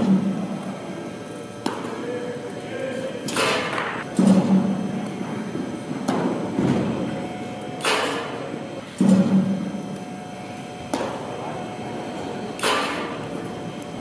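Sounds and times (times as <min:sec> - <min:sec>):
baseballs hit and caught echoing: 0:01.5 - 0:02.2, 0:03.2 - 0:13.7.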